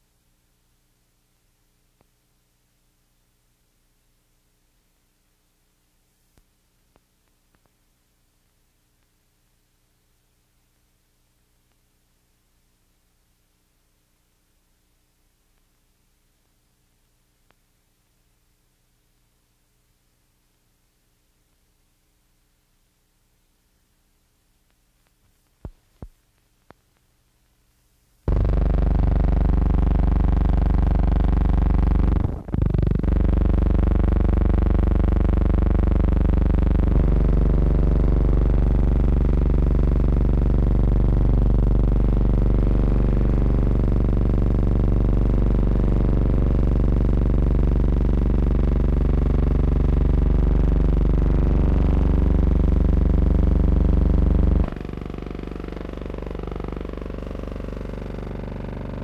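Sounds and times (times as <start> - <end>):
loud droning hum: 28.3 - 59.0.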